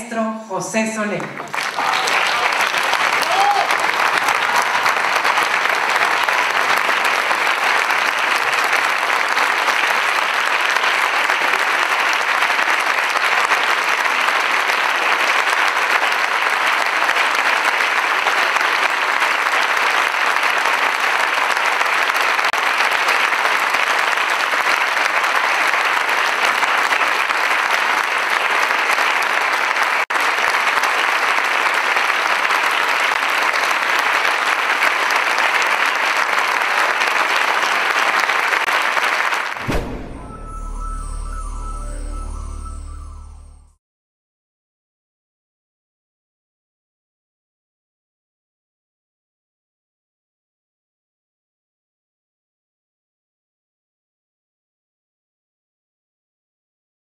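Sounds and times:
audience applauding: 1.2s - 43.6s.

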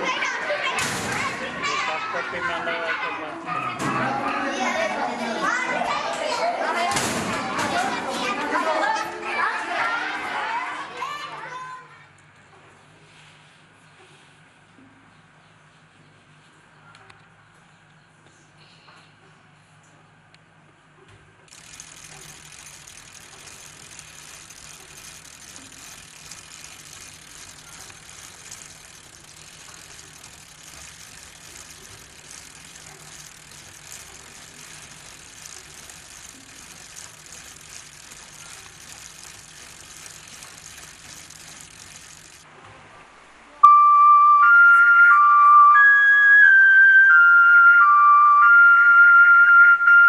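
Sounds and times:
flute melody: 43.6s - 50.0s.

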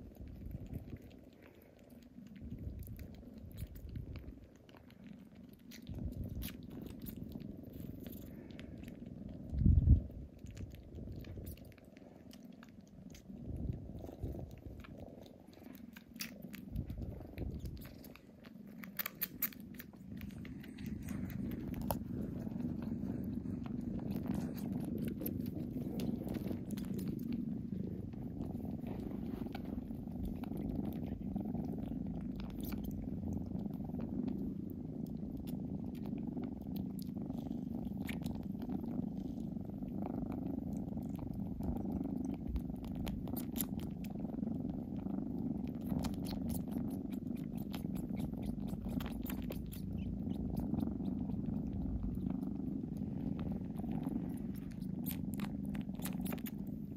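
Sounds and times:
kittens purring: 0.0s - 56.9s
wet sucking clicks: 0.2s - 33.1s, 45.8s - 56.9s.

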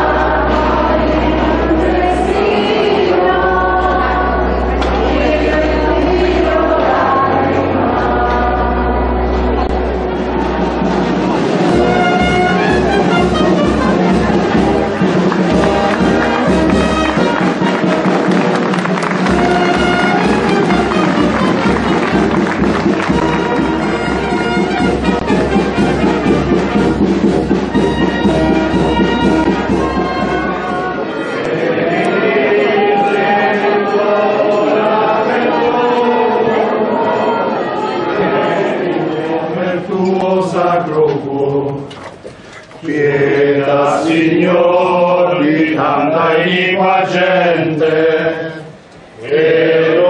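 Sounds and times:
group singing a hymn: 0.0s - 9.7s, 14.2s - 17.4s, 29.0s - 42.1s, 42.7s - 50.0s
brass band playing: 0.0s - 41.0s.

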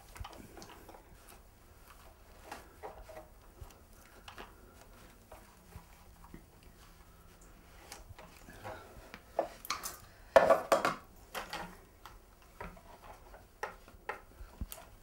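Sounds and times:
cloth rustling: 0.0s - 9.6s.

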